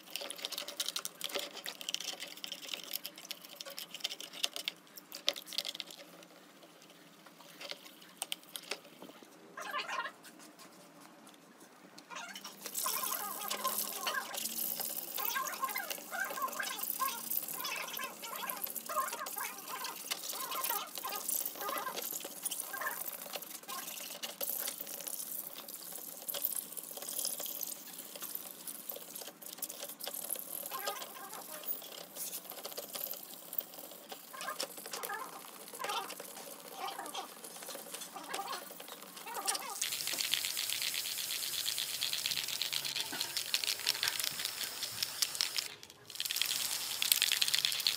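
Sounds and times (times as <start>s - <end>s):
toothbrush scrubbing plastic case: 12.4s - 47.9s.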